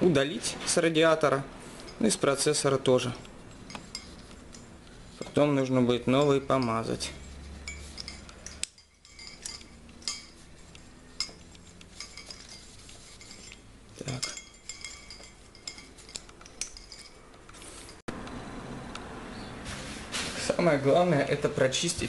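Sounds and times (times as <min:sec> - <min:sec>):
cloth rubbing metal: 0:03.4 - 0:18.0.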